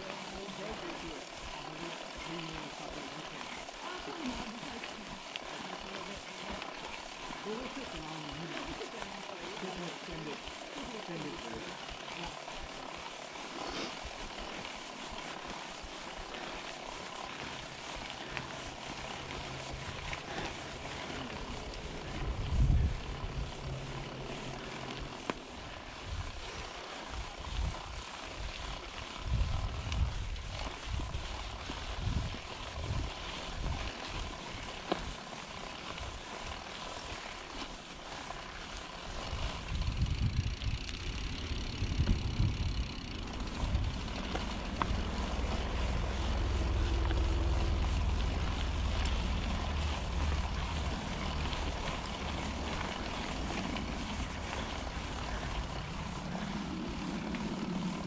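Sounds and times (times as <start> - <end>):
bike tyres on dirt: 0.0 - 58.0
wind buffeting microphone: 17.7 - 28.5, 29.2 - 33.9, 39.2 - 58.0.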